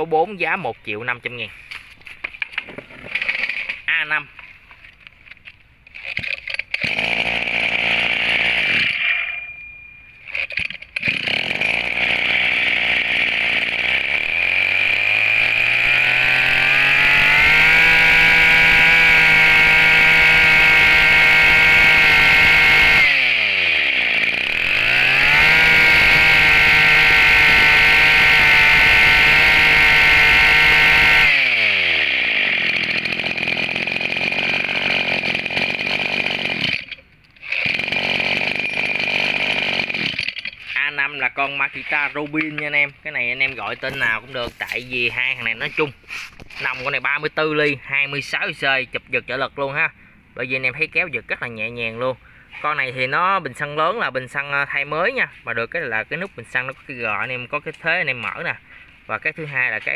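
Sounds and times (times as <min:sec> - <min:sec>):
brush-cutter engine idling and revving: 0:02.3 - 0:03.9, 0:05.9 - 0:09.3, 0:10.3 - 0:47.4
brush-cutter engine pull-started: 0:02.3 - 0:03.9, 0:05.9 - 0:09.3, 0:10.2 - 0:47.2.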